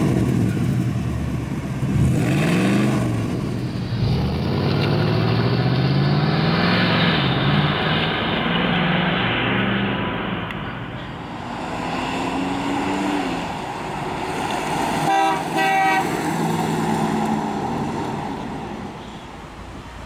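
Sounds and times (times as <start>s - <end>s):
car engine driving past: 1.9s - 19.0s
car horn toots: 15.0s - 16.2s.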